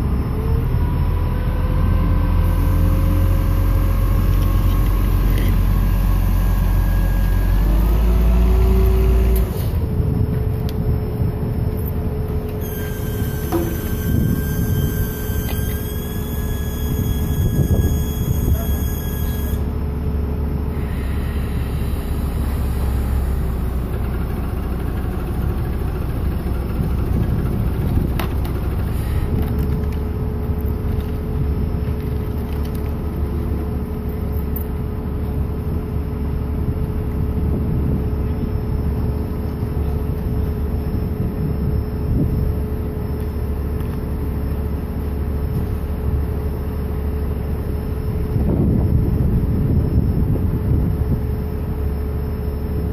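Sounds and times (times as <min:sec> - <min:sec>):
heavy engine rumbling: 0:00.0 - 0:52.9
steady whine: 0:00.0 - 0:52.9.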